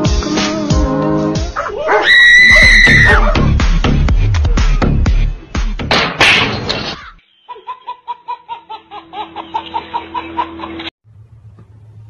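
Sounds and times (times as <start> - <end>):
baby giggling: 7.0 - 10.9.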